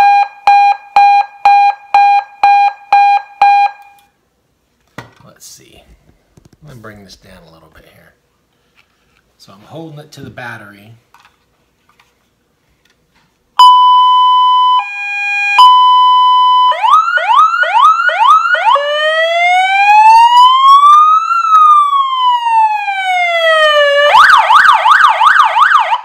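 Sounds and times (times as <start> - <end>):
siren horn tone: 13.6 - 26.0
siren wail: 13.6 - 26.0
siren warble: 13.6 - 26.0
siren whoops: 13.6 - 26.0.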